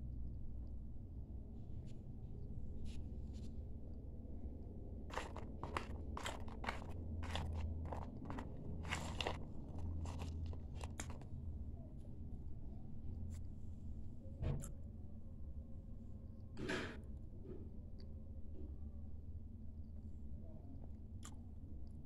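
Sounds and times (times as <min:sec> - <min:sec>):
person chewing crunchy clay: 0:05.1 - 0:11.3.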